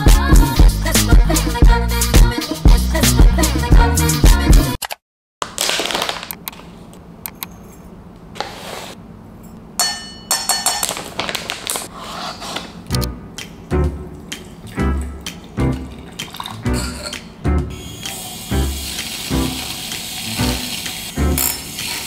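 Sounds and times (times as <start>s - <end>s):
music: 0.0s - 4.8s, 12.9s - 22.0s
household handling knocks and scrapes: 7.7s - 9.0s, 10.7s - 12.8s
ringing clink: 9.4s - 10.9s.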